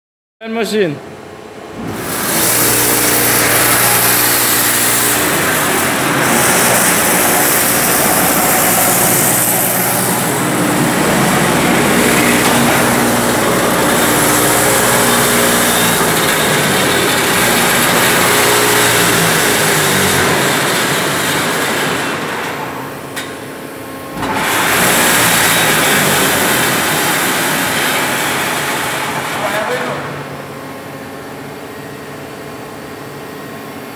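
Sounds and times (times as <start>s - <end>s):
machine mechanical drone: 1.2s - 33.9s.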